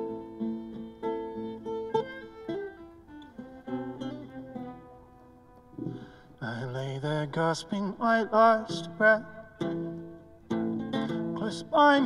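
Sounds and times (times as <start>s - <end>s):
acoustic guitar playing: 0.0s - 12.0s.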